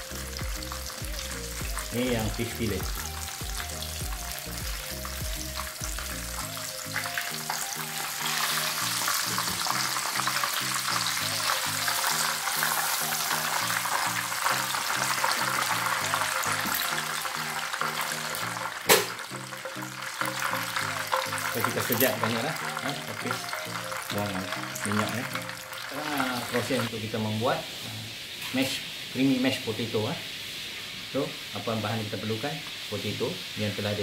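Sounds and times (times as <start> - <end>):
fish deep-frying in hot oil: 0.0 - 34.0
sharp knock: 18.9 - 19.2.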